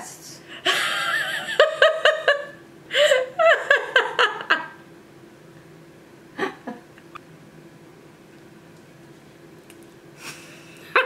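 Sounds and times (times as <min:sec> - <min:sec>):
person laughing: 0:00.6 - 0:04.8, 0:06.4 - 0:06.9, 0:10.2 - 0:11.0.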